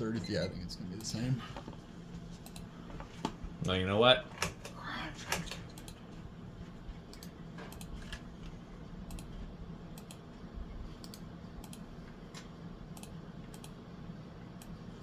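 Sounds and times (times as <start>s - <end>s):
ceiling fan motor hum: 0.0s - 15.0s
sharp clicks: 9.1s - 9.3s, 13.0s - 13.8s.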